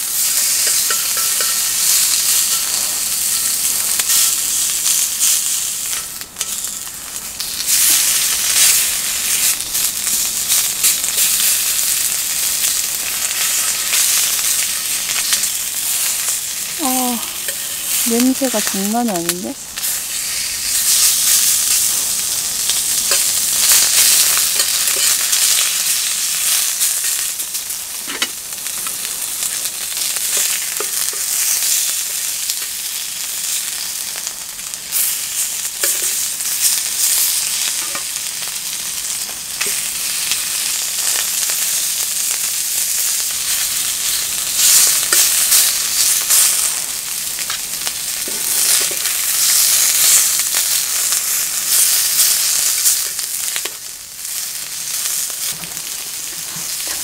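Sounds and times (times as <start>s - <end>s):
meat sizzling in frying pan: 0.0s - 57.0s
tongs clicking on pan: 0.5s - 4.4s.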